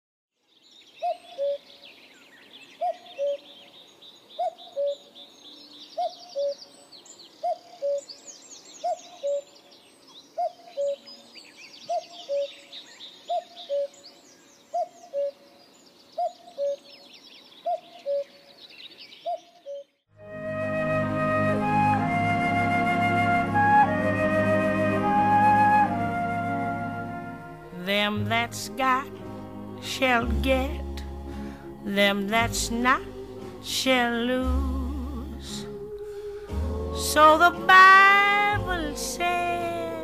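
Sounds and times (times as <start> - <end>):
small birds chirping: 0.4 - 20.1.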